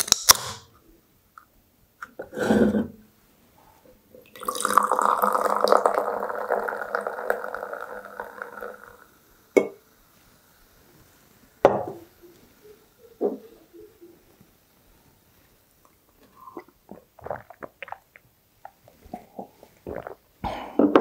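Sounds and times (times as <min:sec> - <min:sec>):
soda poured into a glass fizzing: 0:04.3 - 0:09.3.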